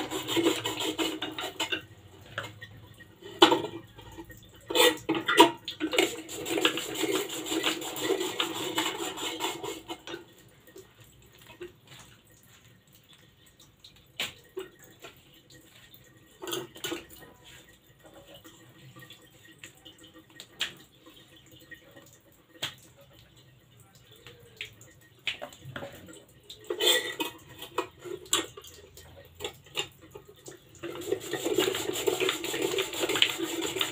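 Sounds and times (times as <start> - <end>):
potato slicer rasping strokes: 6.1 - 9.9, 31.0 - 33.9.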